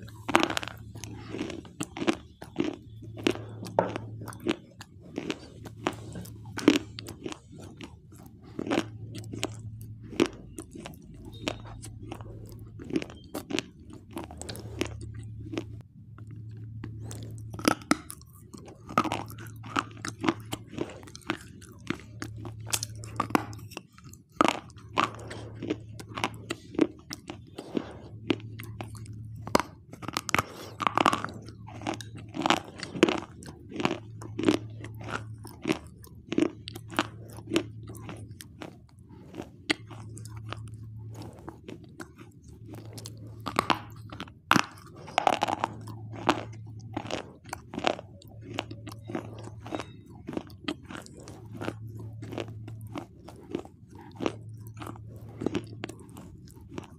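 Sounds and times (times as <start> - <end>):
person crunching and chewing: 0.0 - 56.9.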